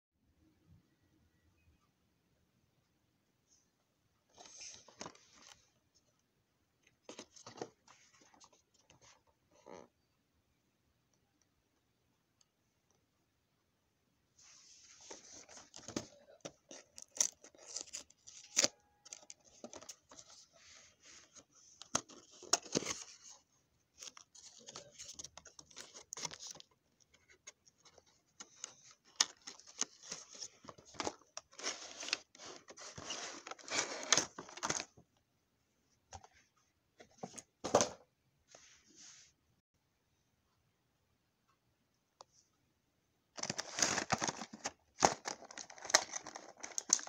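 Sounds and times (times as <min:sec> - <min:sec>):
packaging rustling and scraping: 0:27.8 - 0:34.9, 0:43.4 - 0:47.0.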